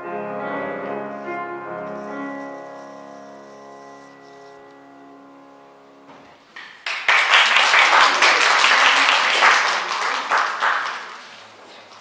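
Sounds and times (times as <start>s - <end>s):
audience applauding: 6.6s - 12.0s.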